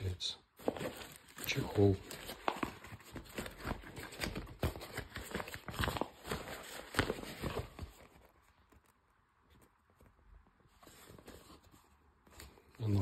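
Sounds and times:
nylon cover rustling: 0:00.6 - 0:08.9.

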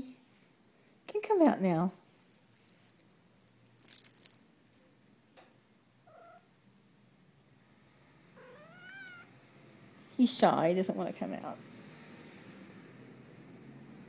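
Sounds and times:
cat meowing: 0:06.1 - 0:06.5, 0:08.4 - 0:09.4.

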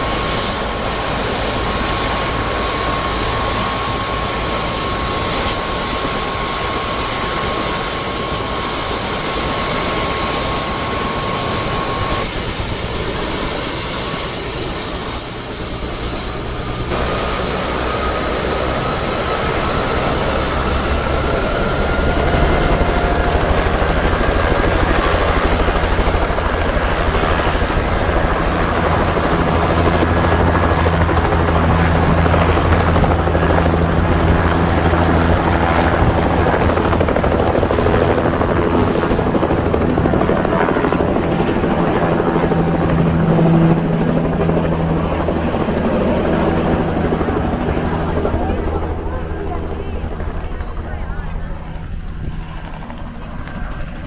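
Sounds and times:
helicopter rotor beat: 0:00.0 - 0:54.0
helicopter turbine whine: 0:00.0 - 0:54.0.

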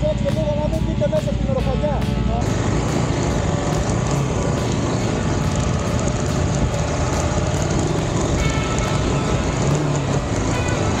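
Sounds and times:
motorcycle engine running: 0:00.0 - 0:11.0
wind noise on microphone: 0:02.3 - 0:11.0.

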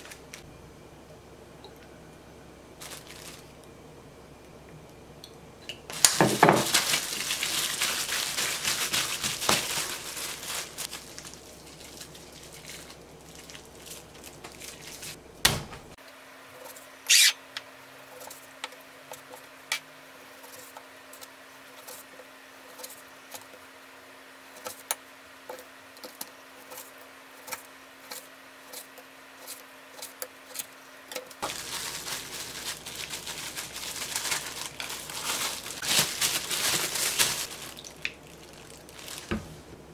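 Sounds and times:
faint steady hum: 0:00.0 - 0:39.9
plastic bag crinkling: 0:02.8 - 0:03.6, 0:05.9 - 0:15.2, 0:31.4 - 0:39.6.

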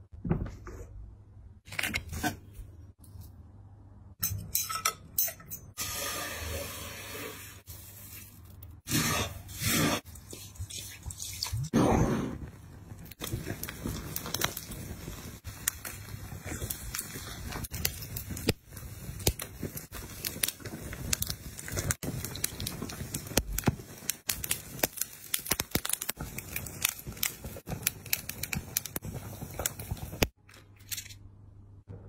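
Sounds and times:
meat crackling on open flames: 0:12.4 - 0:30.4.

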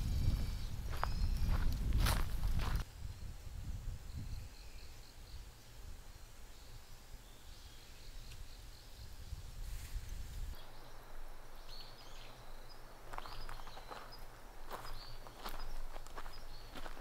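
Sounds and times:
faint high chirping calls: 0:00.0 - 0:02.8, 0:04.0 - 0:17.0
steady low rumble: 0:00.0 - 0:04.2.

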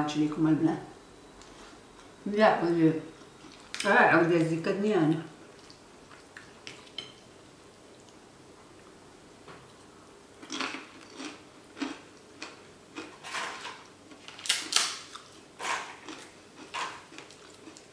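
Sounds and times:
person chewing: 0:03.2 - 0:03.8, 0:05.5 - 0:07.2, 0:09.7 - 0:17.9.

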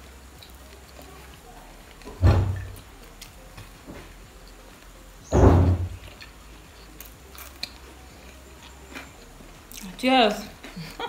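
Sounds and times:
muffled thud: 0:02.2 - 0:02.8, 0:05.3 - 0:06.0.

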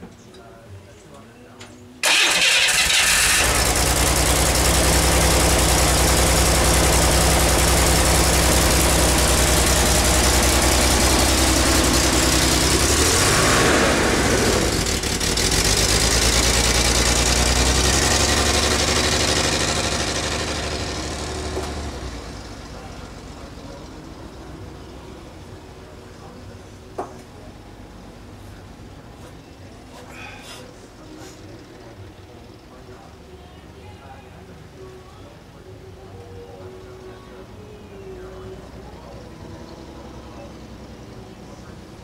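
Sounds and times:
car driving off: 0:02.0 - 0:26.4
car engine idling: 0:02.0 - 0:42.0.

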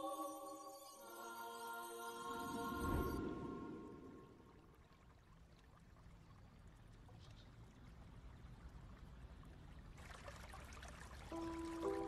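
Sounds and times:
trickling water: 0:03.2 - 0:12.0.

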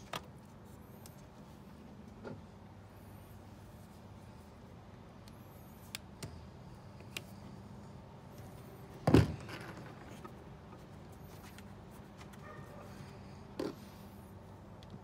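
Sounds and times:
low steady hum: 0:00.0 - 0:15.0
loud thump of parts knocked together: 0:09.0 - 0:09.8.

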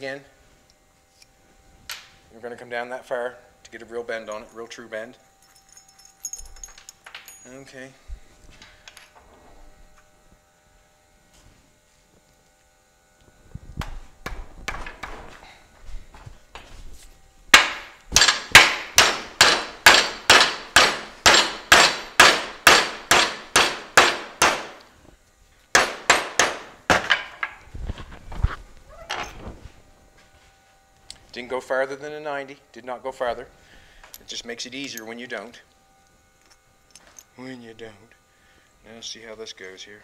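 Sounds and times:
hammer striking metal bracket: 0:17.6 - 0:24.8.

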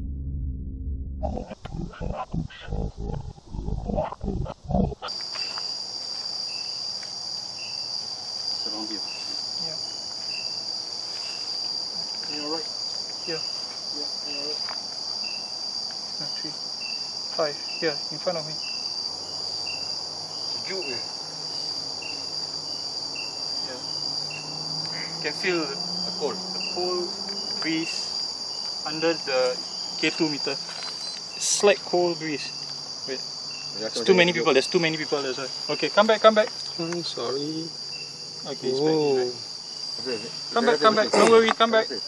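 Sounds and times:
sound-effect stinger: 0:00.0 - 0:03.2
cricket chirp: 0:01.2 - 0:42.0
insects droning: 0:01.2 - 0:42.0.

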